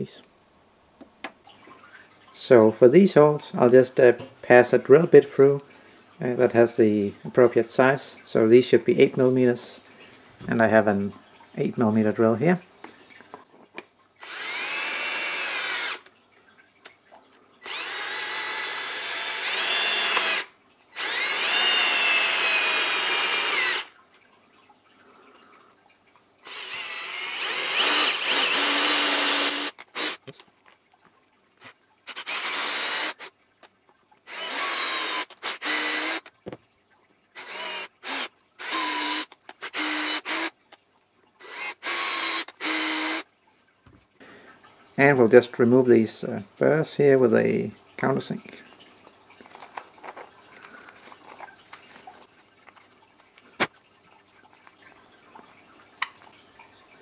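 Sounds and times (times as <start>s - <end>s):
cordless drill motor whine: 14.2s - 16.0s, 17.6s - 23.9s, 26.5s - 30.2s, 32.1s - 33.3s, 34.3s - 36.3s, 37.4s - 40.5s, 41.4s - 43.2s.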